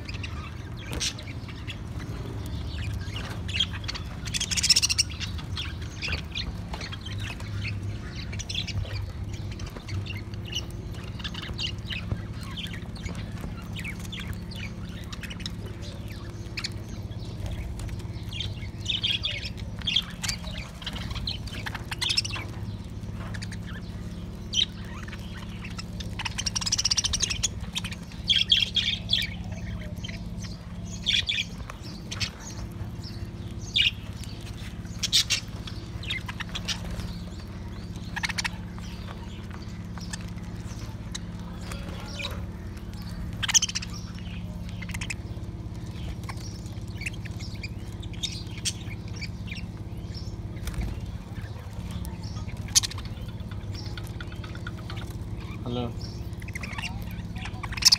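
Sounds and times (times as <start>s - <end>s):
budgerigars chirping and squawking: 0.0s - 57.9s
steady low hum: 0.0s - 57.9s.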